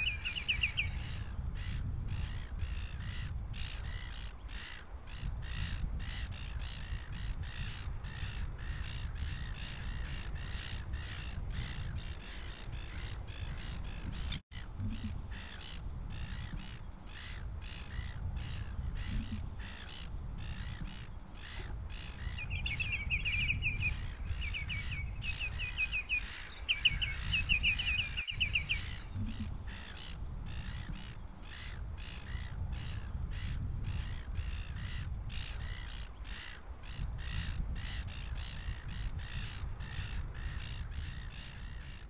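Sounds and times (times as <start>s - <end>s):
ringing piping bird notes: 0.0s - 1.2s, 22.3s - 29.2s.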